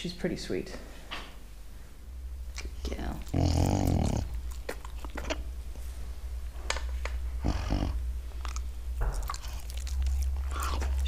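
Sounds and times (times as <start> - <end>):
steady low hum: 0.0 - 11.0
animal licking and chewing meat: 2.5 - 6.1, 8.1 - 11.0.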